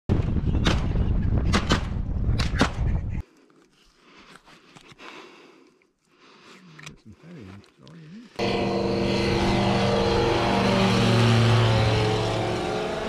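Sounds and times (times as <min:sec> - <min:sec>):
low rumble of moving vehicle: 0:08.4 - 0:13.0.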